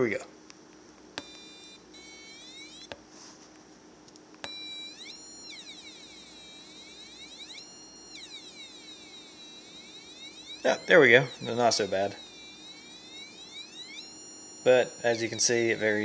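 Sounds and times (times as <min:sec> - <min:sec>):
sweeping electronic tone: 0:01.2 - 0:02.9, 0:04.4 - 0:16.0
sharp clicks: 0:01.2 - 0:03.0, 0:04.1 - 0:16.0.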